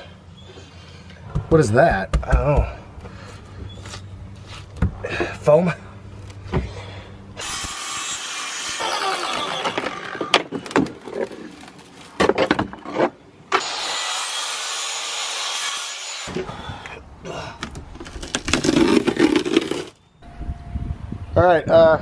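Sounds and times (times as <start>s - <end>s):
rasping saw-like cutting: 7.4s - 10.3s, 13.6s - 16.4s
wood cracking: 8.8s - 13.1s, 17.6s - 20.0s.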